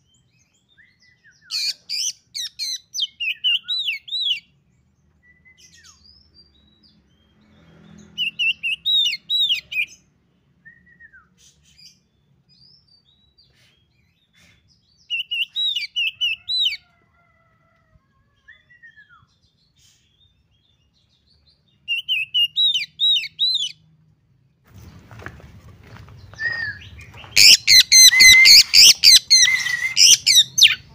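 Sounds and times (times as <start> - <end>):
bird whistles and gliding notes: 26.2 - 30.8.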